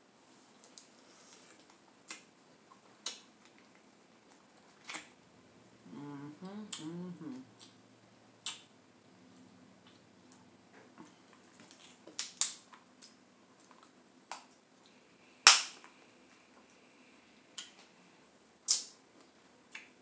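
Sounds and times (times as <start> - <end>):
crab shells cracking: 11.6 - 13.2.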